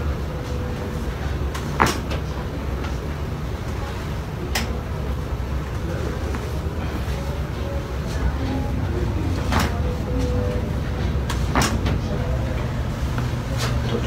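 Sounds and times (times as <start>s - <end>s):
steady low rumble: 0.0s - 14.0s.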